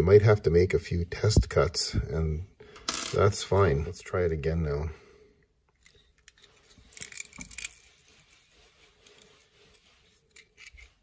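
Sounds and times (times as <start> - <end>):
coax stripping tool scraping cable: 5.8 - 11.0.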